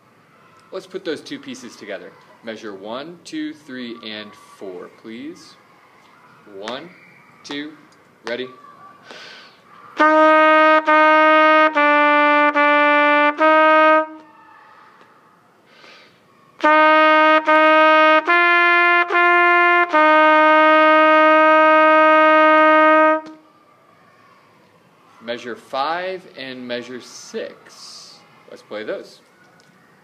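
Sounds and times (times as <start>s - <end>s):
solo trumpet playing: 10.0s - 14.3s, 16.6s - 23.5s.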